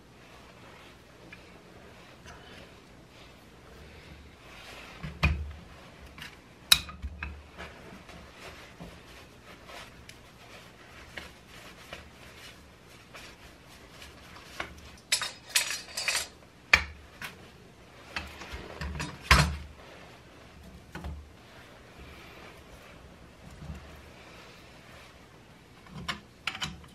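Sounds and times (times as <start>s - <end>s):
metal parts clinking on workbench: 15.1s - 16.4s.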